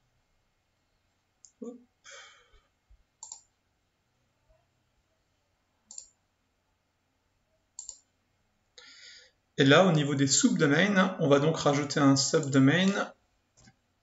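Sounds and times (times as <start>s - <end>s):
computer mouse clicking: 3.2s - 3.6s, 5.9s - 6.2s, 7.8s - 8.1s.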